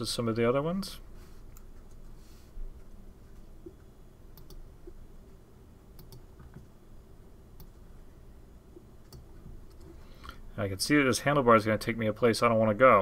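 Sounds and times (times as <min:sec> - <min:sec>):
faint computer mouse clicks: 0:03.6 - 0:04.6, 0:06.0 - 0:06.6.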